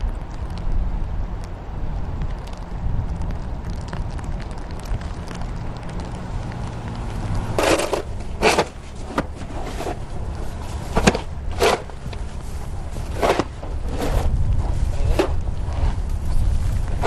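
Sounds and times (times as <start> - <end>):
low steady rumble: 0.0 - 17.0
snow shovels scraping sidewalk: 7.4 - 16.4.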